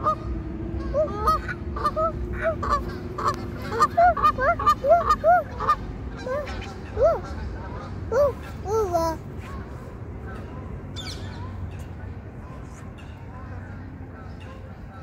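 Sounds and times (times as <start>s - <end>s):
geese honking: 0.0s - 8.0s.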